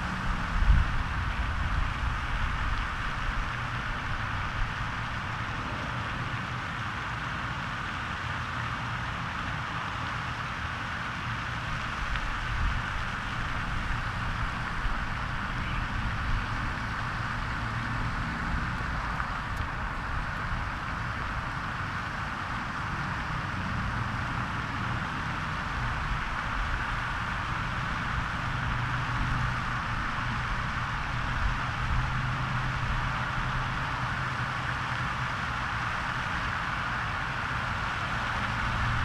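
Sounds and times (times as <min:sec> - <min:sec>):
unsteady low rumble: 0:00.0 - 0:08.5
even outdoor hiss: 0:00.0 - 0:39.0.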